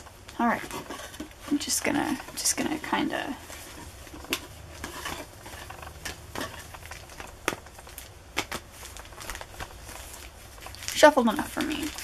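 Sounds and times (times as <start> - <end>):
foil packs crinkling: 0.0 - 12.0.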